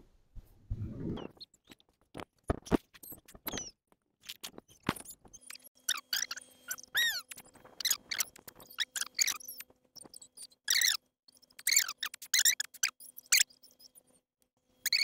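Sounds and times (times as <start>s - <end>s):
squeaky toy squeaking: 5.9s - 9.6s, 10.7s - 11.0s, 11.6s - 13.5s.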